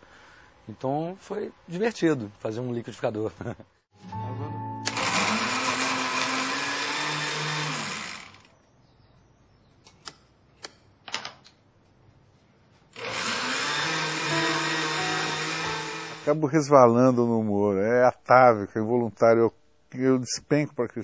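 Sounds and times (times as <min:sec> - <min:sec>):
blender running: 0:04.8 - 0:08.5, 0:13.0 - 0:16.3.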